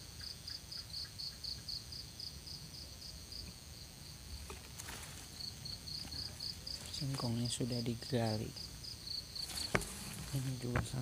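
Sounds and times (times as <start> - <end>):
insect chirping: 0.0 - 11.0.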